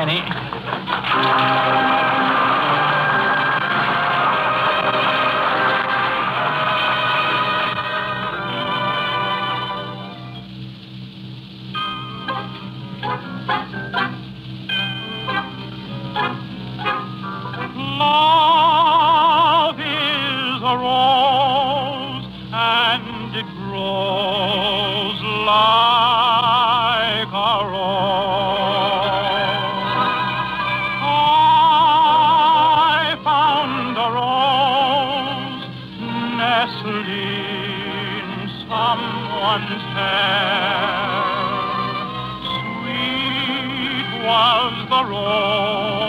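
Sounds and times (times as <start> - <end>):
man singing a ballad: 17.8 - 29.8, 31.0 - 41.8, 42.6 - 46.0.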